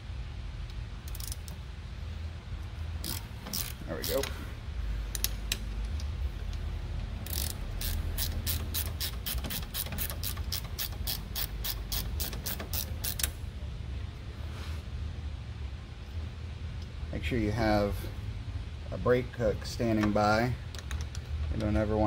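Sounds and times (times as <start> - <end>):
low steady hum: 0.0 - 22.0
ratcheting wrench clicking: 1.0 - 1.6, 3.0 - 4.4, 5.1 - 13.4.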